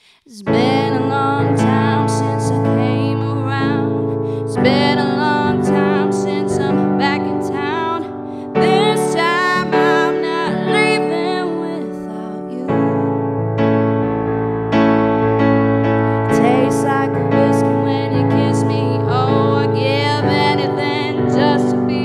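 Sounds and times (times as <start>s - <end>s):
woman singing a soul ballad: 0.0s - 13.3s, 16.1s - 22.0s
sustained keyboard piano chords: 0.5s - 22.0s.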